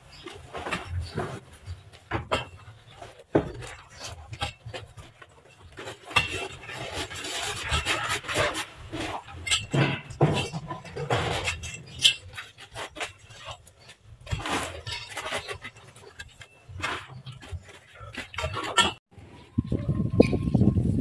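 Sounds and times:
metal bar scraping: 0.1 - 19.0
metal bar striking gravel: 6.0 - 13.6.

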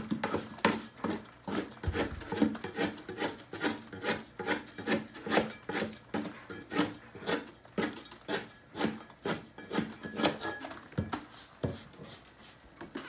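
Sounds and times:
scraper scraping ceiling: 0.0 - 12.7.

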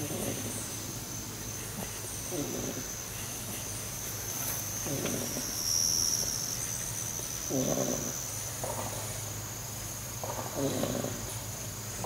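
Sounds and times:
puppies snoring: 0.0 - 0.8, 1.6 - 3.6, 4.8 - 5.6, 7.5 - 9.1, 10.2 - 11.4
high insect trill: 0.0 - 12.0.

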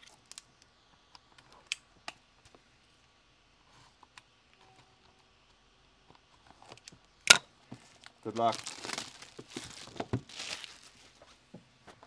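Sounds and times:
handling of shrink-wrapped box: 7.8 - 11.3.

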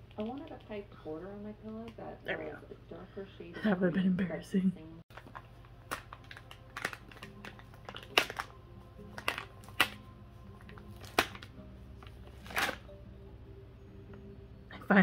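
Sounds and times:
plastic packet crinkling: 5.1 - 10.0, 10.6 - 11.5, 12.3 - 12.8.

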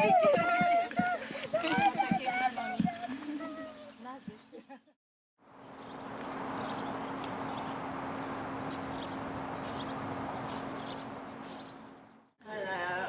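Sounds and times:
swallow twittering chirps: 5.4 - 12.3.

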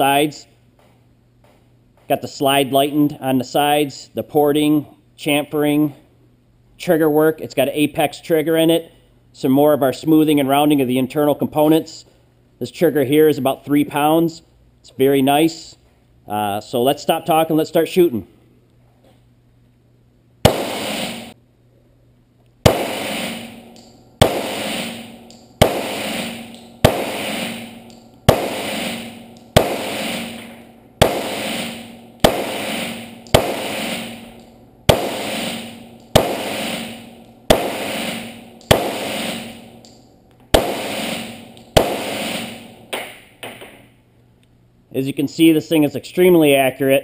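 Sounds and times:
pistol shots echoing indoors: 20.4 - 21.4, 22.6 - 43.6.

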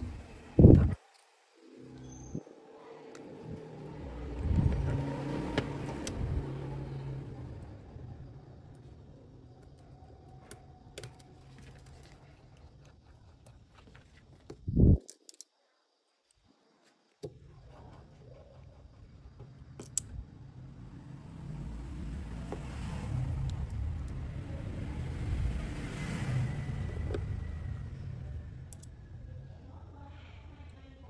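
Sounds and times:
low road vehicle rumble: 3.3 - 9.5, 19.5 - 29.8
small clicks: 15.0 - 15.6, 28.7 - 28.9.

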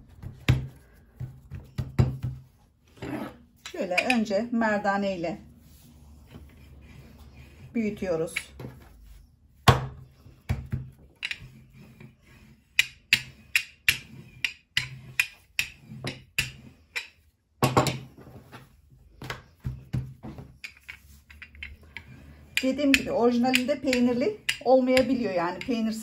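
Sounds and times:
rolling pin knocking on wood: 21.6 - 26.0.

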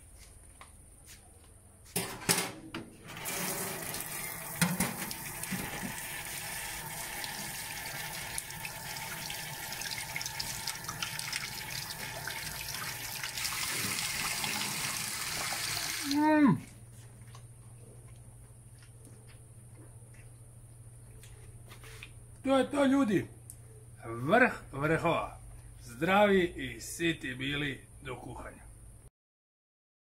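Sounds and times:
tap running into a metal sink: 3.2 - 6.2.

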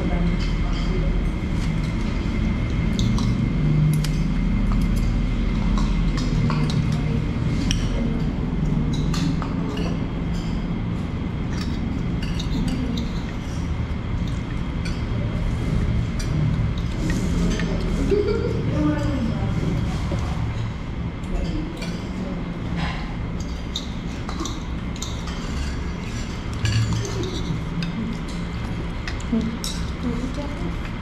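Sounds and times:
low hum of dining room: 0.0 - 31.0
cutlery clinking on plates: 11.5 - 13.4, 22.8 - 30.0.

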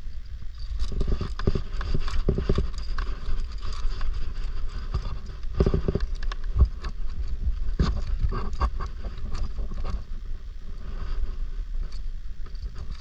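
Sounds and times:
steady low rumble: 0.0 - 13.0
irregular knocking and clattering: 4.9 - 7.0.

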